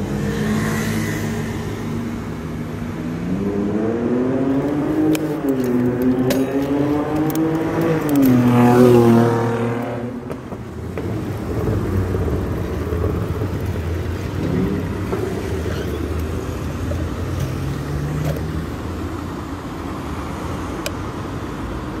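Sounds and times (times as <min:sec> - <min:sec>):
street traffic rumble: 0:00.0 - 0:22.0
vehicle passing close by: 0:03.0 - 0:18.7.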